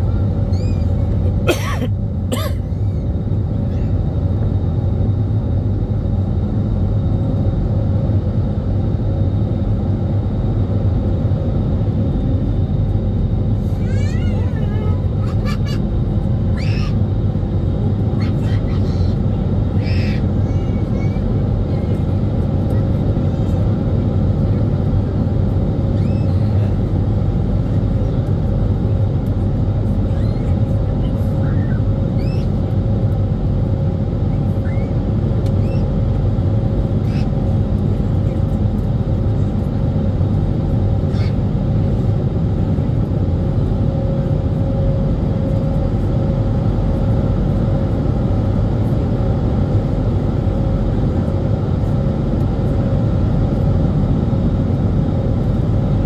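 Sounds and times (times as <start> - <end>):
jet engines roaring: 0.0 - 56.0
steady cabin hum: 0.0 - 56.0.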